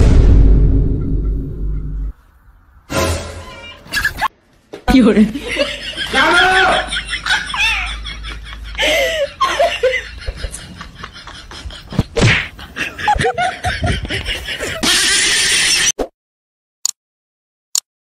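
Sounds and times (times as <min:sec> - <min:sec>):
people laughing and exclaiming: 0:05.4 - 0:14.8.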